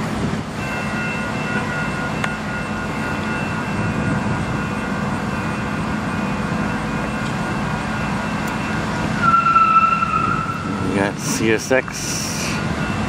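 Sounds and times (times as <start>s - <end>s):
freight train diesel rumble: 0.0s - 13.0s
train horn: 9.2s - 10.8s.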